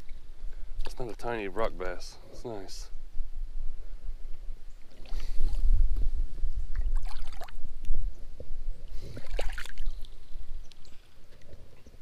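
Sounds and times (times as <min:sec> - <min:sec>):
creek water splashing: 0:04.7 - 0:05.7, 0:06.7 - 0:07.8, 0:08.9 - 0:11.6.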